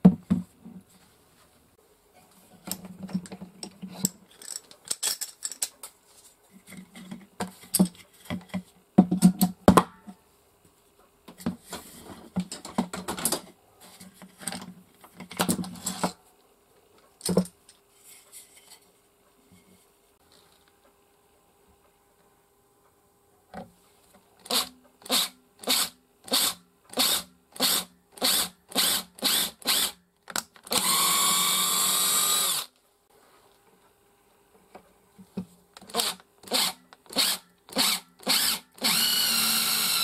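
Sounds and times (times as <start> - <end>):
metal clamps clicking and rattling: 2.7 - 5.9.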